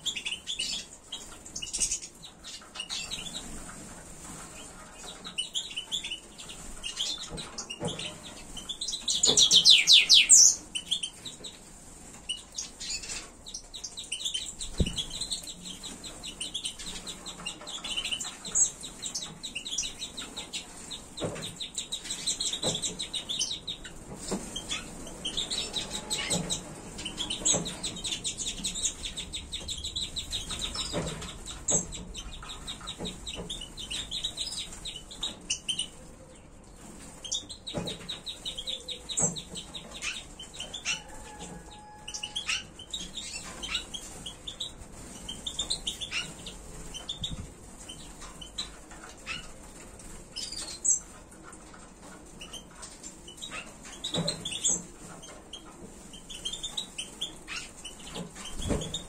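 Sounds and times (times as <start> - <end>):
finches twittering and chirping: 5.0 - 11.6, 12.3 - 36.0.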